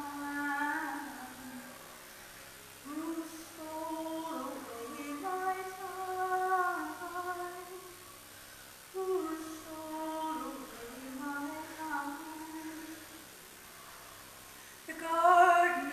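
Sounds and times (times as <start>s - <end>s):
woman singing unaccompanied: 0.0s - 1.8s, 2.8s - 8.0s, 8.9s - 13.3s, 14.8s - 15.9s.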